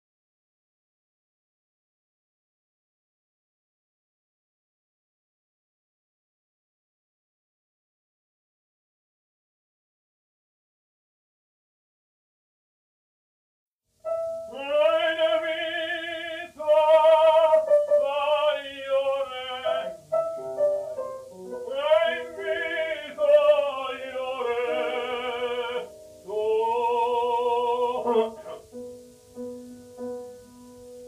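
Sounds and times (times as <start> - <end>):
operatic tenor singing: 14.5 - 20.2, 21.4 - 28.8.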